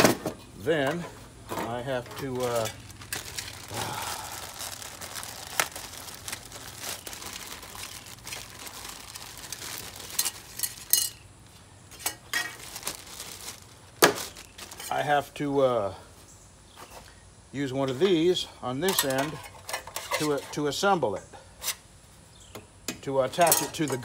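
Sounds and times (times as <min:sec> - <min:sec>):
plastic bag crinkling: 0:01.6 - 0:15.1.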